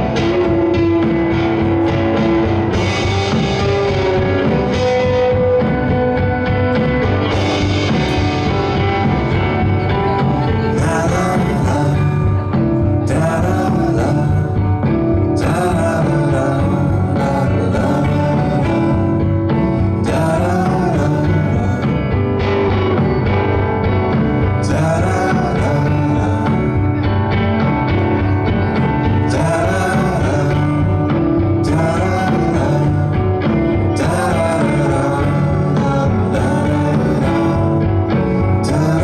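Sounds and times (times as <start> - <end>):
acoustic guitar: 0.0 - 39.0
drums: 0.0 - 39.0
keyboard: 0.0 - 39.0
man singing: 7.9 - 23.2, 24.4 - 39.0.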